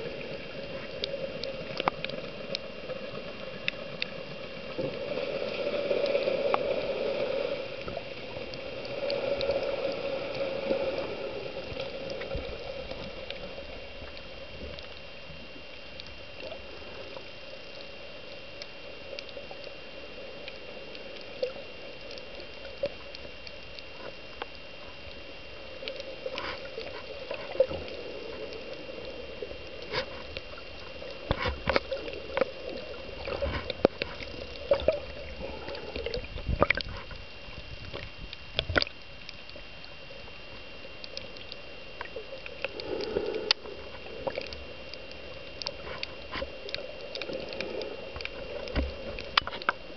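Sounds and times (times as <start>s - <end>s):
muffled underwater water noise: 0.0s - 49.9s.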